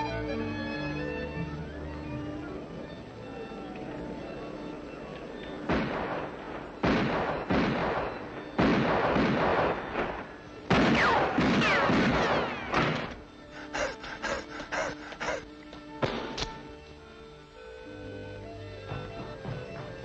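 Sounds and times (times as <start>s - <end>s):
cartoon shotgun blasts: 6.8s - 13.2s.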